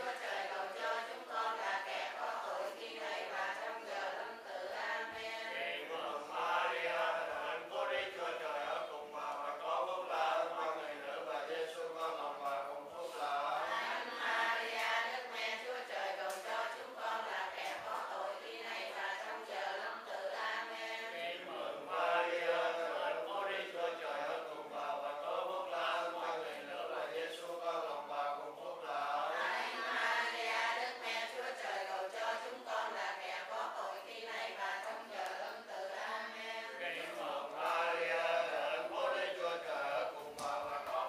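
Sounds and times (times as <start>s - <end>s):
group chanting prayers in unison: 0.0s - 41.0s.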